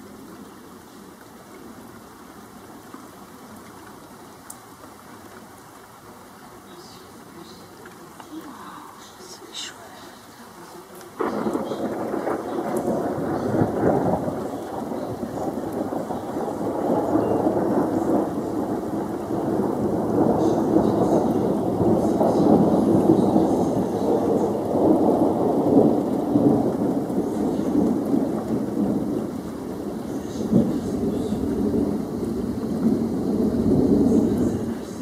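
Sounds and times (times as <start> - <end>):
rolling thunder: 11.0 - 35.0.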